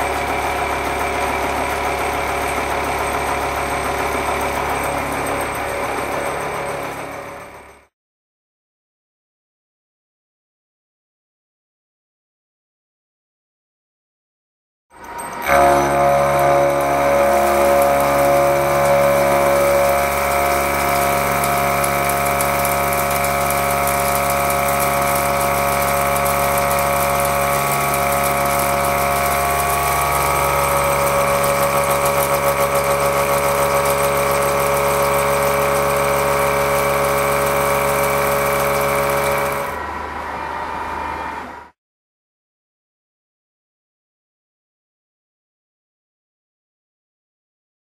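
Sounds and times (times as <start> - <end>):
milling cutter machining hum: 15.3 - 41.6.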